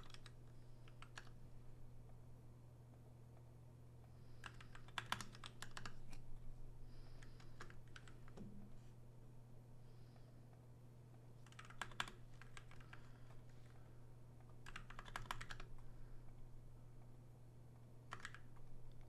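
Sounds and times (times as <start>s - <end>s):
faint keyboard typing: 0.0s - 2.2s, 2.9s - 8.7s, 10.5s - 19.0s
steady low hum: 0.0s - 19.0s.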